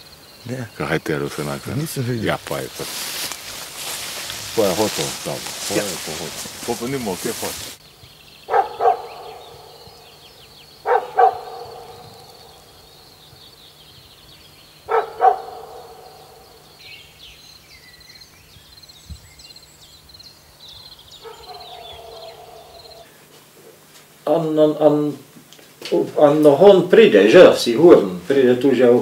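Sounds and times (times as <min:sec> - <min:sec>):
faint bird chirps: 0:07.8 - 0:23.3
animal barking: 0:08.4 - 0:10.0, 0:10.8 - 0:12.7, 0:14.8 - 0:16.6, 0:21.2 - 0:23.1.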